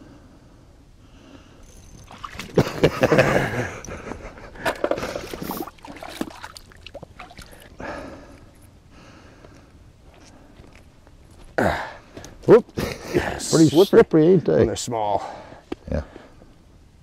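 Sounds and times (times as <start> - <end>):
water splashing and sloshing: 1.9 - 3.0, 4.6 - 7.8.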